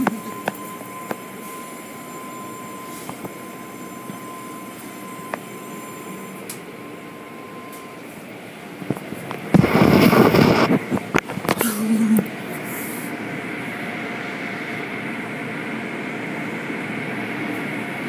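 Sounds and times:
faint steady tone: 0.0s - 8.3s
car wash machinery running: 0.0s - 18.0s
loud rush of noise: 8.3s - 11.2s.

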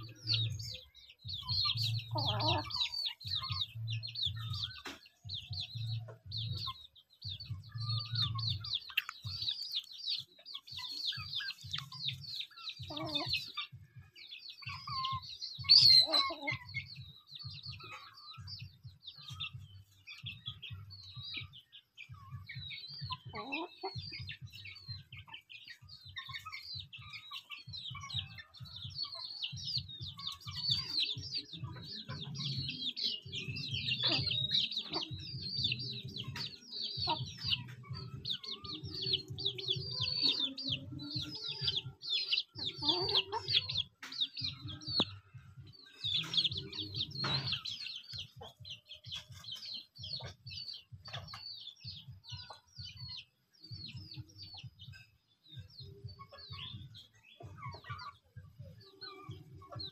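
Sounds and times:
choppy low rumble: 0.0s - 9.5s
chickens chirping and clucking: 0.0s - 59.9s.

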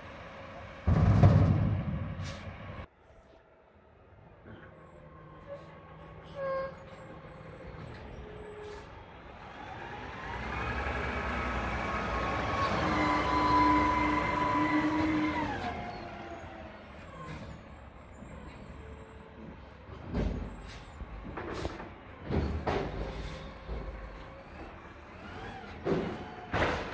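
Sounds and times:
garbage truck diesel engine: 0.0s - 2.9s, 3.8s - 26.9s
air brake hisses: 2.2s - 2.6s, 23.0s - 23.6s.

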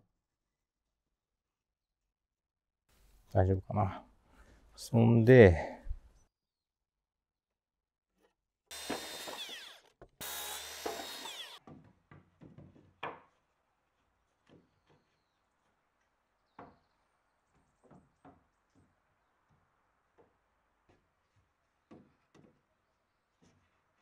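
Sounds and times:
circular saw cutting timber: 8.7s - 11.6s
light wooden knocks: 21.8s - 22.6s.

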